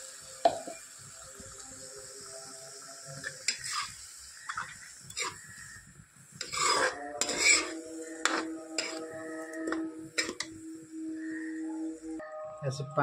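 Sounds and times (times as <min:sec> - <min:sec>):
spatula scraping a metal pan: 0:03.3 - 0:05.8, 0:06.4 - 0:10.6.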